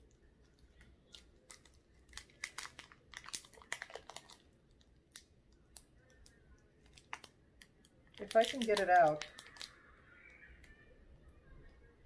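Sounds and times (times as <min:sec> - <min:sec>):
plastic tray clicking and crinkling: 0:06.8 - 0:09.7.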